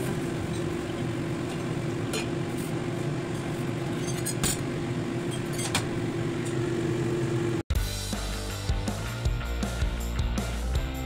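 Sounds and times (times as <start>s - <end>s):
steady background hum: 0.0s - 7.6s.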